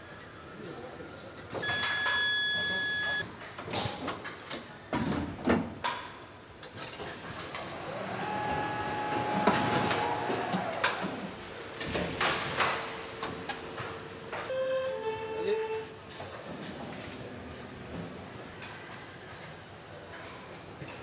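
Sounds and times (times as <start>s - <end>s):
motor whine: 6.5s - 11.1s.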